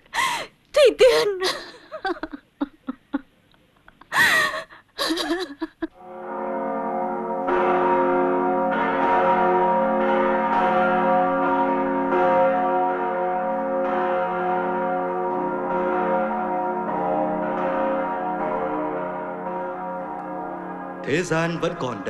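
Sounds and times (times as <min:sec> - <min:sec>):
church bells ringing: 0:05.1 - 0:22.0.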